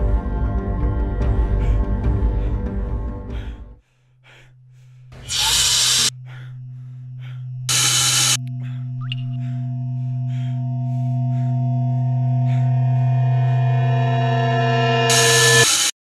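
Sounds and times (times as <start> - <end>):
low drone tone: 0.0 - 3.7, 5.2 - 15.7
loud hiss bursts: 5.2 - 6.1, 7.7 - 8.4.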